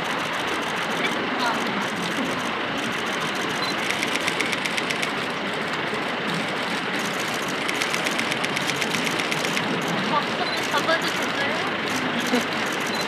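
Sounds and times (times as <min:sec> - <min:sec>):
steady background noise: 0:00.0 - 0:13.0
camera shutter clicks: 0:00.6 - 0:05.2, 0:07.2 - 0:13.0.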